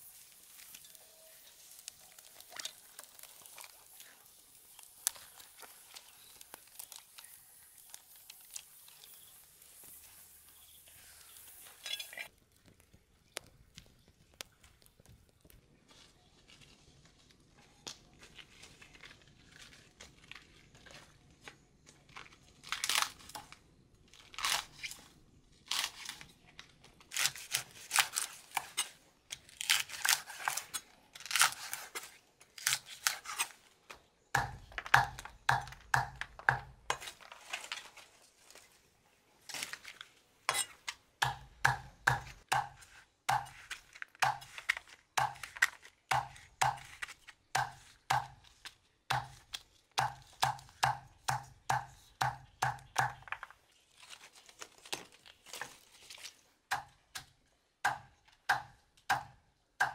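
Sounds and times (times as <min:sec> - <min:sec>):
leaves tearing and rustling: 0:00.0 - 0:33.8, 0:36.9 - 0:40.7, 0:53.2 - 0:56.6
cleaver chopping on wooden block: 0:34.4 - 0:36.7, 0:41.2 - 0:43.6, 0:57.8 - 0:59.9.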